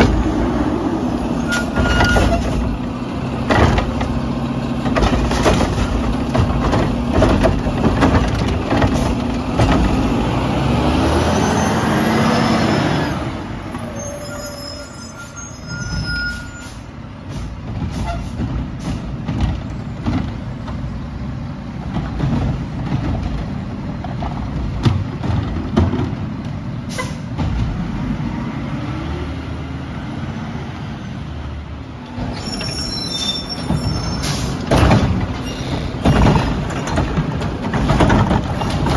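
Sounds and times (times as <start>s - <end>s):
garbage truck engine revving: 0.0s - 13.8s
air brake hissing: 26.9s - 27.2s.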